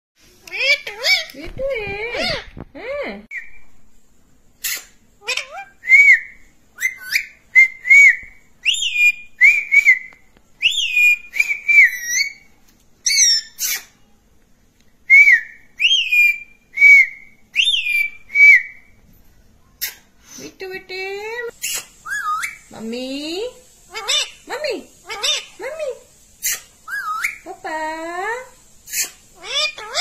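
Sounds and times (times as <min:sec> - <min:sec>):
parakeet whistled calls: 0:04.6 - 0:14.0, 0:15.1 - 0:18.9, 0:21.6 - 0:22.7, 0:23.9 - 0:25.6, 0:26.4 - 0:27.5, 0:28.9 - 0:30.0.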